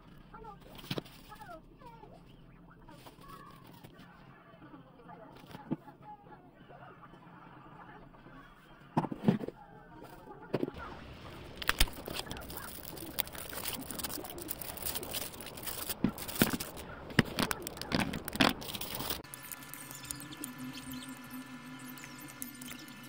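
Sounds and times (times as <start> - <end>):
rustling: 10.8 - 19.2.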